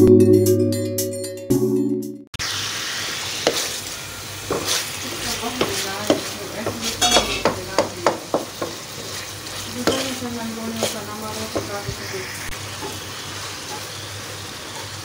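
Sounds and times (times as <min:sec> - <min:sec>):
meat sizzling in oil: 0:02.4 - 0:15.0
spatula scraping a pan: 0:03.2 - 0:13.0.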